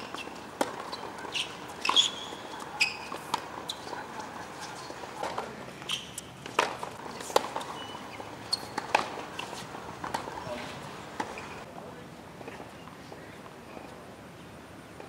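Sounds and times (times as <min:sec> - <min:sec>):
shoe squeaks on court: 0:00.0 - 0:06.3, 0:07.5 - 0:09.6, 0:10.4 - 0:11.6
racket hitting tennis ball: 0:00.0 - 0:11.5
players' footsteps: 0:00.0 - 0:11.7.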